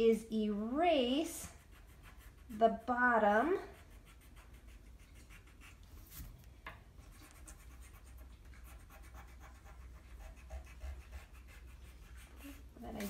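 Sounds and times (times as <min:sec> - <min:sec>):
eraser rubbing on paper: 0:01.4 - 0:02.8, 0:03.6 - 0:06.3, 0:07.1 - 0:13.0.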